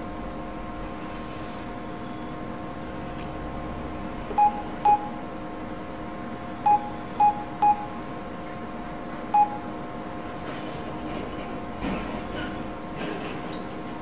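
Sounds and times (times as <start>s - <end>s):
phone keypad beeps: 4.4s - 5.2s, 6.6s - 8.0s, 9.3s - 9.7s.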